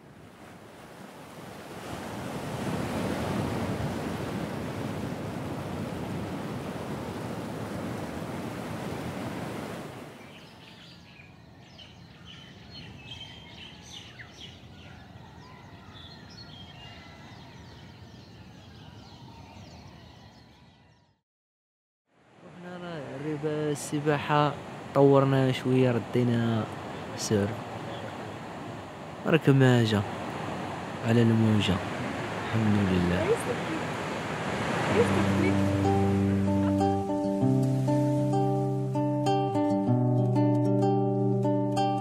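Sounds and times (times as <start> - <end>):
ocean surf washing: 0.0 - 10.4, 22.2 - 39.9
small birds chirping: 10.2 - 21.2, 26.7 - 28.6.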